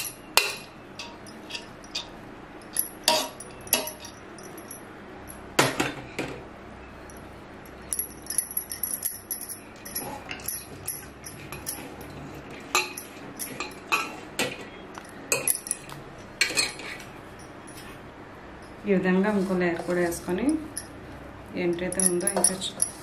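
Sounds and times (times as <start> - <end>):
metal spoon clinking on pot: 0.0 - 4.8, 7.7 - 17.8, 21.7 - 23.0.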